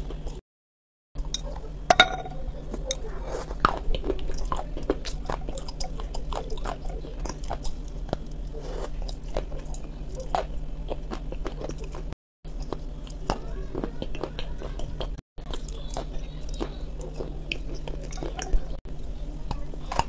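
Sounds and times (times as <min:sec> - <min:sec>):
steady low hum: 0:01.2 - 0:20.0
crunchy biscuit chewing: 0:02.9 - 0:20.0.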